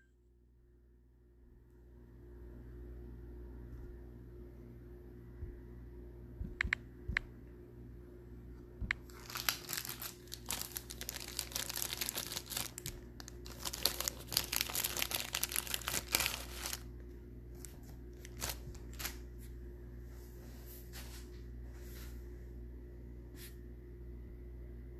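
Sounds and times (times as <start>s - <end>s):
wrapping crinkling and tearing: 9.0s - 16.9s, 18.2s - 19.2s.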